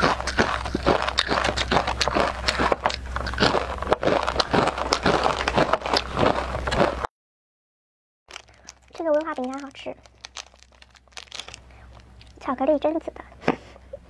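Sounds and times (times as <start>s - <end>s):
crunching of crispy rice cracker: 0.0s - 7.1s, 8.3s - 12.4s.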